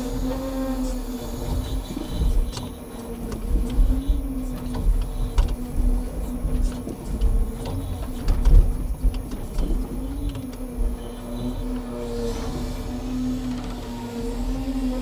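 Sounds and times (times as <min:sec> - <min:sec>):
hydraulic crane whine: 0:00.0 - 0:15.0
logs knocking and clunking: 0:01.4 - 0:11.9.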